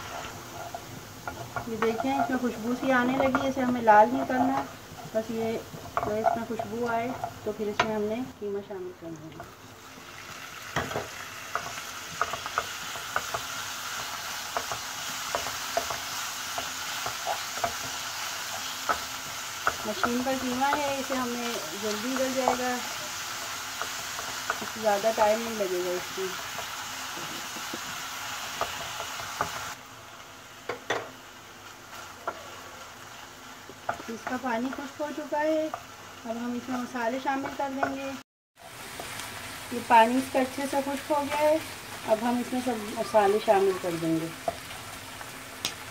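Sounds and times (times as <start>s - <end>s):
spatula scraping a pan: 0.0s - 7.8s
spatula knocking and scraping pan: 0.0s - 8.1s, 10.8s - 23.0s, 33.7s - 35.9s, 36.6s - 38.2s
meat sizzling in a frying pan: 0.0s - 45.9s.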